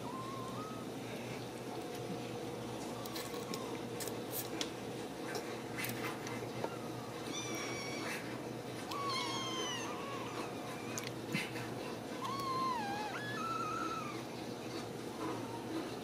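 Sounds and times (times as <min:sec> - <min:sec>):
kitten mewing: 0:07.3 - 0:11.6, 0:12.2 - 0:14.3.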